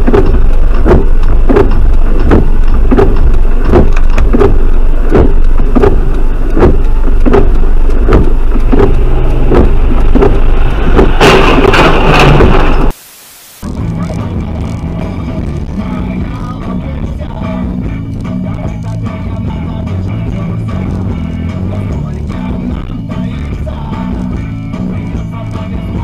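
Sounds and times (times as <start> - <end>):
regular clicking: 0.0 - 12.9
car low rumble: 0.0 - 13.0, 13.6 - 26.0.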